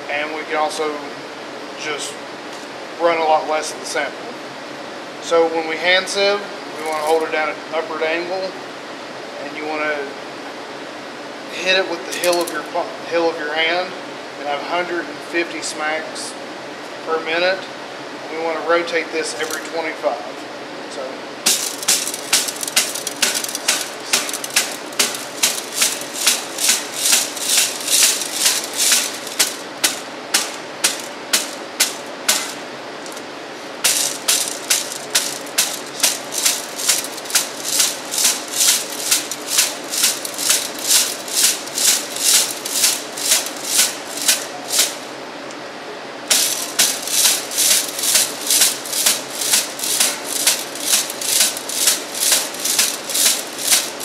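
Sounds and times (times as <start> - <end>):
gravel rattling in a sieve: 12.1 - 12.7, 19.4 - 19.7, 21.5 - 33.2, 33.8 - 45.0, 46.3 - 54.0
hand smacking a sieve: 21.5 - 33.2, 33.8 - 45.0, 46.3 - 54.0.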